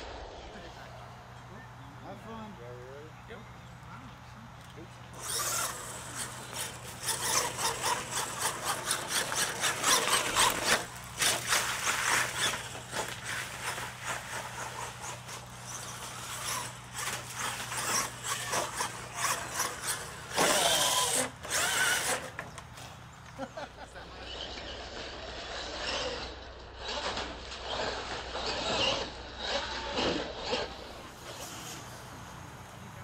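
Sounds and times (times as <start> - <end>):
tyres churning through dirt: 0.0 - 33.0
electric motor whining: 5.1 - 22.9, 24.2 - 32.8
toy truck tumbling over: 5.2 - 22.6, 24.3 - 32.0.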